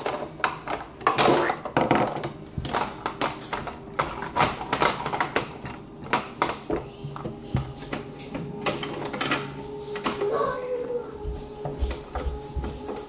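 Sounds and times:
plastic toy pieces clattering: 0:00.0 - 0:06.9.

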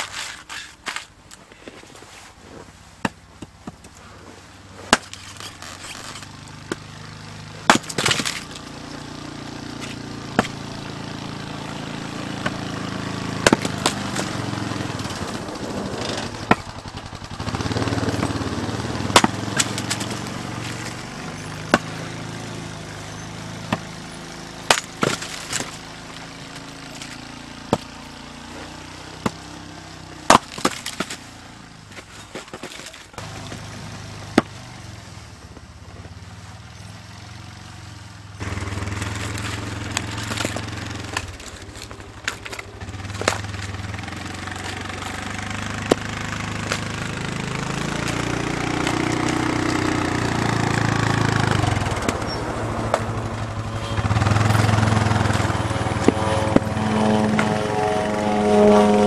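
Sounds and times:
axe splitting firewood: 0:00.0 - 0:01.9, 0:02.6 - 0:34.7, 0:38.4 - 0:59.0
low hum: 0:38.4 - 0:59.0.

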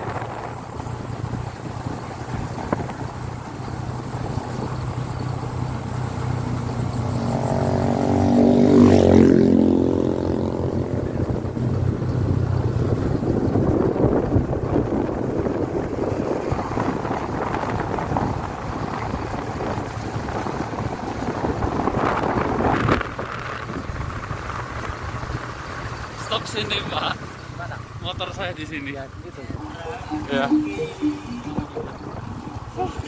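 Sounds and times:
vehicle passing by: 0:00.0 - 0:22.4.

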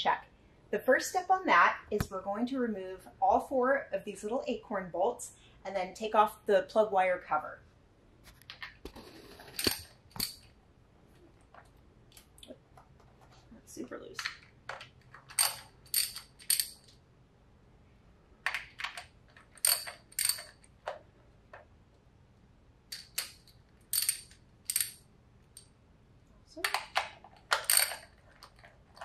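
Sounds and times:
ratchet clicking on metal: 0:15.4 - 0:16.8, 0:19.6 - 0:20.6, 0:23.0 - 0:25.0.

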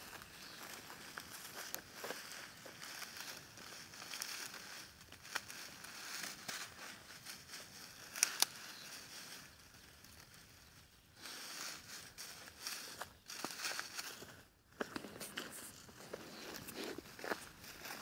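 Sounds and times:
dry straw rustling and crackling: 0:00.0 - 0:18.0.

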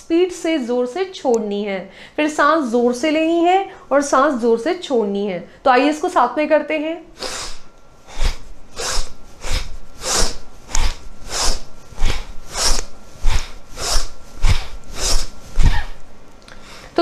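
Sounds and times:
woman breathing forcefully: 0:07.2 - 0:17.0.

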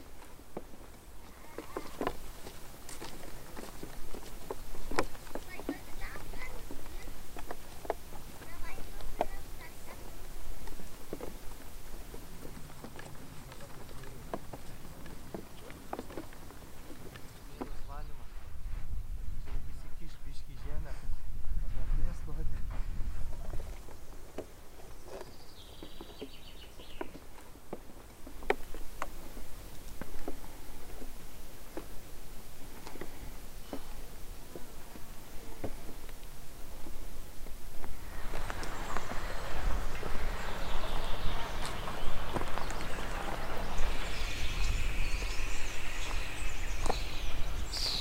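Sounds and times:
small birds chirping: 0:00.0 - 0:18.3, 0:23.4 - 0:48.0
footsteps in dry sand: 0:00.0 - 0:48.0
high bird trill: 0:38.0 - 0:48.0.

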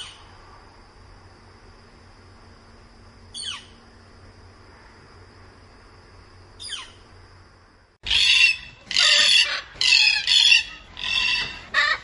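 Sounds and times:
background hiss: 0:00.0 - 0:09.0
cockatoo harsh calls: 0:08.0 - 0:12.0.

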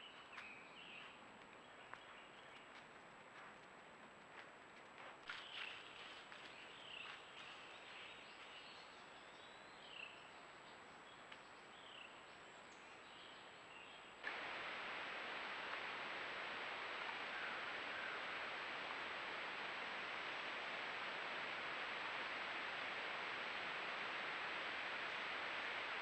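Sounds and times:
steady hiss: 0:10.1 - 0:26.0.

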